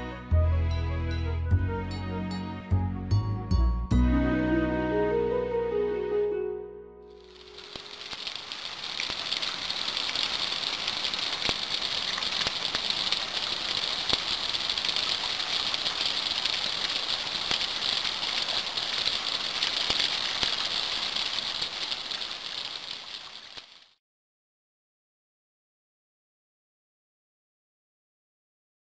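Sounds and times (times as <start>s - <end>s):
rain on wet asphalt: 7.2s - 24.0s.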